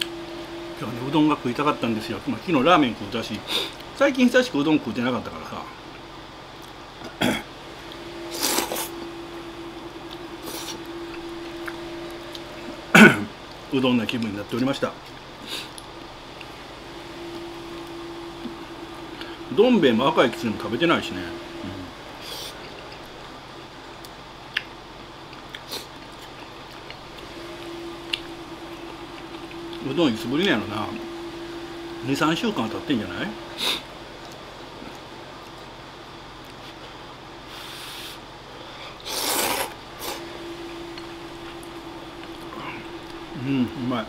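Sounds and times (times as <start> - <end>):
air conditioner hum: 0.0 - 44.0
person slurping noodles: 8.3 - 8.9, 39.0 - 40.2.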